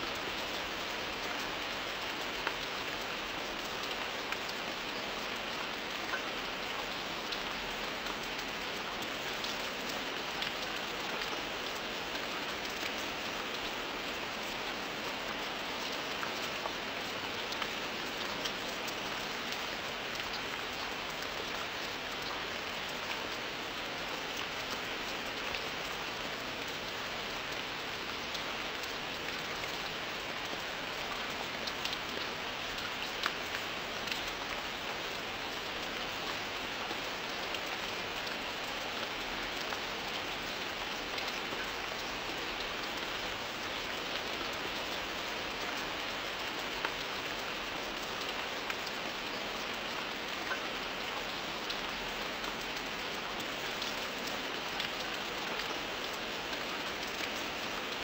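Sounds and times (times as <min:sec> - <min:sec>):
rain hissing on surface: 0:00.0 - 0:58.0
raindrop ticks: 0:31.6 - 0:34.4.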